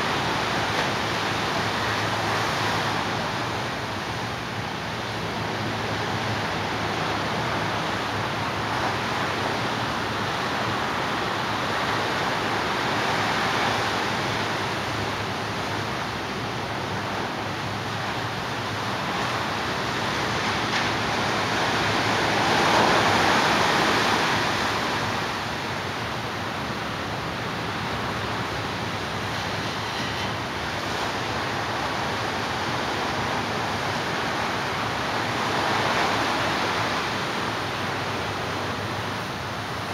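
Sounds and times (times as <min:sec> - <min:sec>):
ocean surf breaking: 0:00.0 - 0:39.9.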